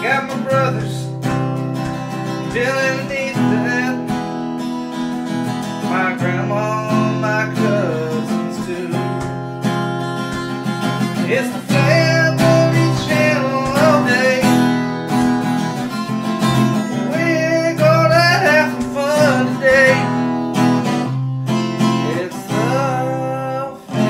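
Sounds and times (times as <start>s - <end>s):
person singing: 0.0s - 9.7s, 11.0s - 16.0s, 16.6s - 20.5s, 21.6s - 24.0s
strummed acoustic guitar: 0.0s - 24.0s.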